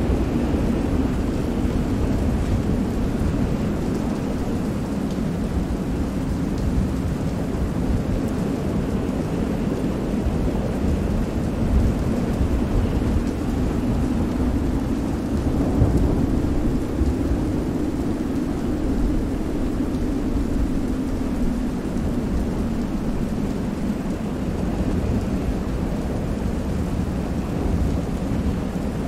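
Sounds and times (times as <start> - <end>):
heavy rain: 0.0 - 29.0
wind: 0.0 - 29.0
rumble of thunder: 10.2 - 29.0.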